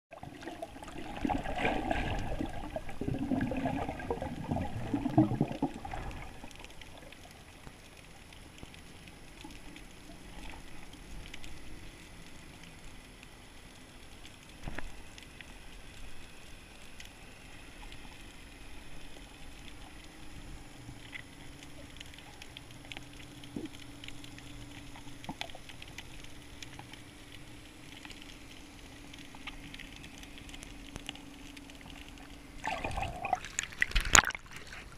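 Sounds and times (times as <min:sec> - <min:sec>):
underwater crackling and clicks: 0:00.1 - 0:34.9
water sloshing: 0:00.2 - 0:07.0, 0:32.6 - 0:34.9.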